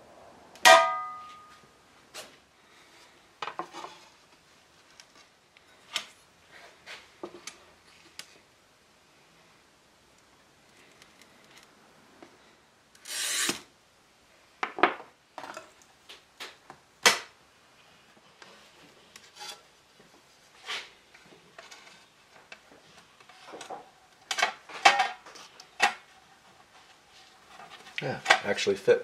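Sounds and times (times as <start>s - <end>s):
glass cutter scoring glass: 13.0s - 13.7s.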